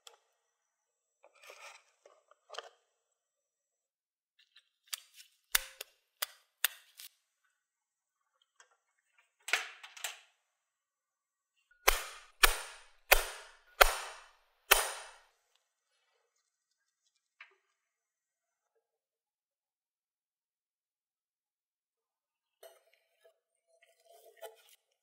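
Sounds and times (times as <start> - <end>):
hammer striking impact driver: 11.9 - 15.2.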